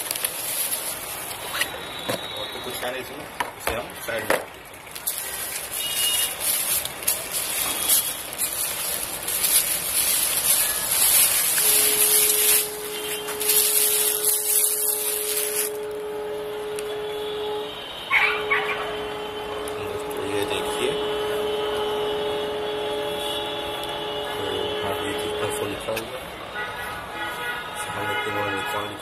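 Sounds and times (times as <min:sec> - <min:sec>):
bubble wrap crinkling: 0:00.0 - 0:03.0, 0:04.0 - 0:16.0
steady humming tone: 0:07.2 - 0:18.1.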